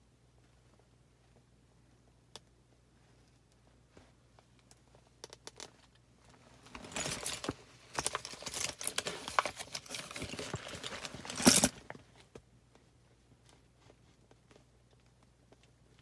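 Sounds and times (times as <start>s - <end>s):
folder pages rustling: 6.6s - 12.4s.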